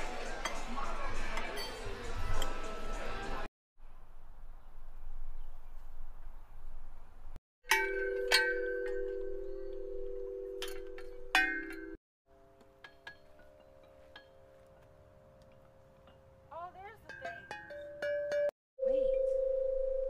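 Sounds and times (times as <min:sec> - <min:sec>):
metal tube chimes ringing: 0:07.6 - 0:12.0.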